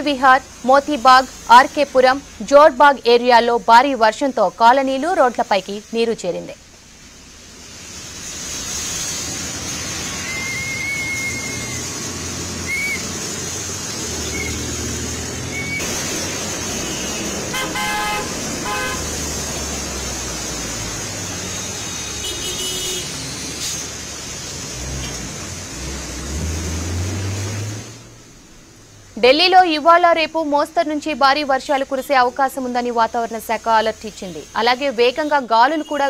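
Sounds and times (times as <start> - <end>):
heavy rain: 0.0 - 36.0
tyres hissing on wet road: 0.0 - 36.0
engine rumble: 6.6 - 31.0
vehicle horns honking: 16.7 - 19.2, 21.6 - 23.2.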